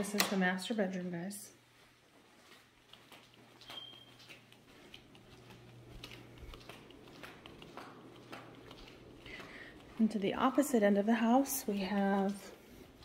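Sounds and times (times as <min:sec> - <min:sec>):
faint footsteps clicking: 0:00.0 - 0:13.0.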